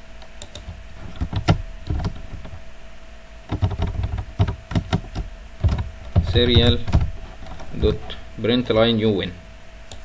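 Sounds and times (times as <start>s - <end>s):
faint steady hum: 0.0s - 10.0s
computer keyboard clicking: 0.4s - 2.6s, 3.5s - 8.0s.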